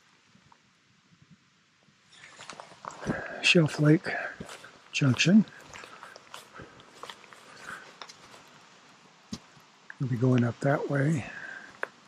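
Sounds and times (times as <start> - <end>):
footsteps crunching in snow: 2.1 - 9.6.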